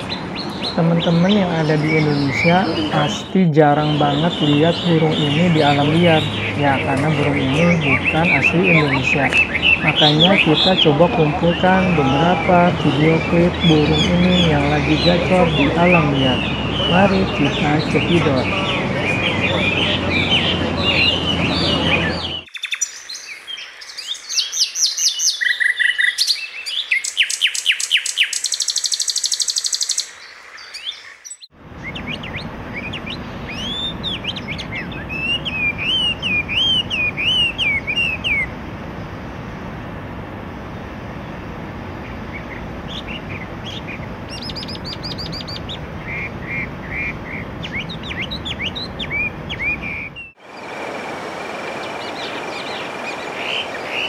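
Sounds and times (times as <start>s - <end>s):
bird singing whistled phrases: 19.1s - 23.2s, 23.9s - 30.1s, 30.8s - 38.5s, 43.7s - 50.4s.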